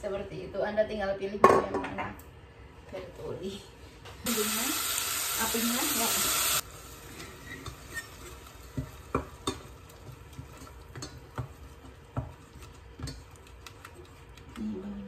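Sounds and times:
faint sizzle of frying paste: 1.8 - 15.0
spatula scraping a saucepan: 7.1 - 14.6.

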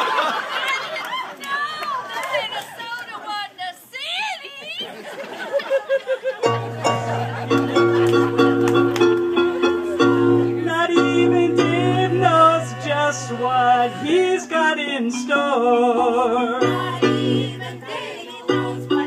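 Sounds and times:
digital piano chords: 6.4 - 19.0
group of people singing: 10.2 - 19.0.

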